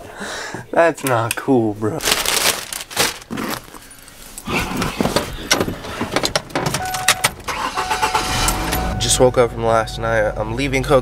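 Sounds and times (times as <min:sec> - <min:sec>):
bag rustling: 0:02.0 - 0:06.2
car keys jangling: 0:05.5 - 0:08.9
steady high tone: 0:06.9 - 0:11.0.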